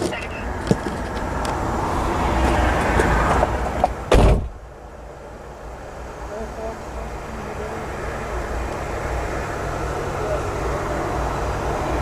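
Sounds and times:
road traffic rushing: 0:00.0 - 0:12.0
loud thump: 0:04.1 - 0:04.6.

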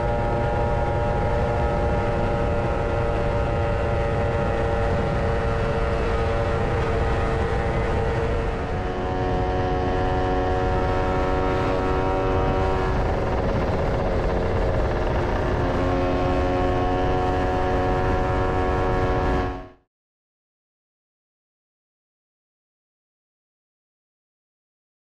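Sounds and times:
scooter engine running: 0:00.0 - 0:19.4
riding wind rushing: 0:03.8 - 0:19.5.

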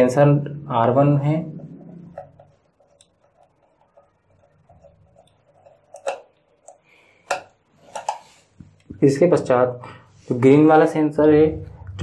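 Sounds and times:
screwdriver turning a screw: 0:02.2 - 0:06.3.

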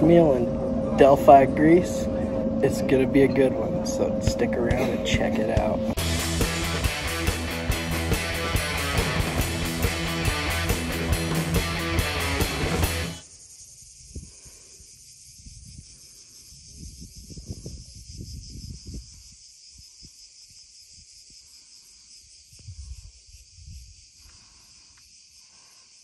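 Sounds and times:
cicadas buzzing: 0:00.0 - 0:26.0
wind on microphone: 0:14.0 - 0:14.5, 0:15.3 - 0:20.2, 0:22.5 - 0:24.1.

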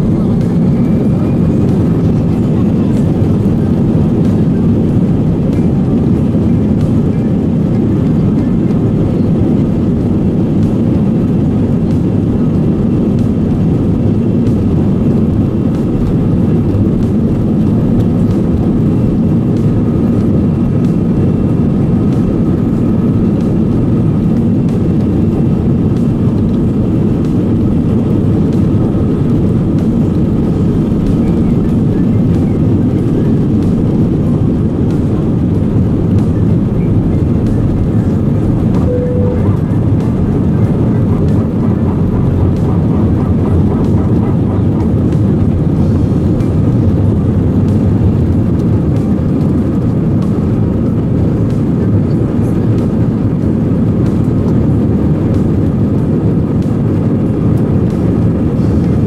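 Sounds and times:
jet engine rumble in cabin: 0:00.0 - 0:59.0
faint steady whine: 0:14.3 - 0:43.9.

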